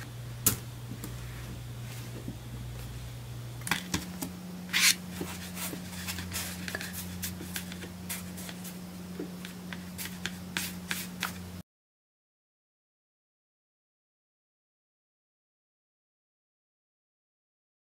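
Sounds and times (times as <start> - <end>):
low steady hum: 0.0 - 11.6.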